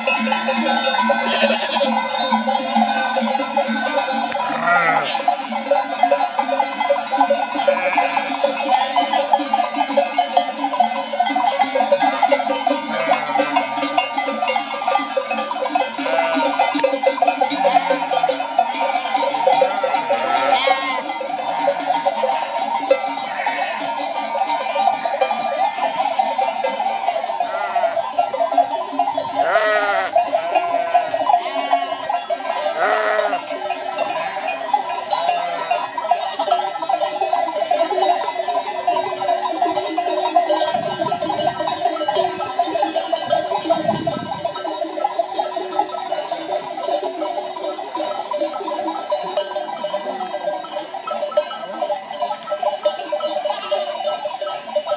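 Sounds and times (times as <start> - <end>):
sheep and goat bells clanking: 0.0 - 54.9
sheep bleating: 1.1 - 2.1, 4.4 - 5.3, 7.7 - 9.2, 12.0 - 13.9, 16.0 - 16.6, 18.9 - 21.1, 23.3 - 24.0, 27.5 - 28.0, 29.4 - 32.1, 32.7 - 33.5.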